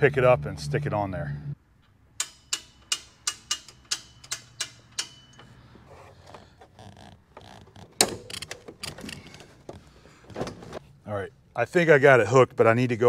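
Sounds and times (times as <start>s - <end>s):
winch ratchet clicking: 2.2s - 5.5s.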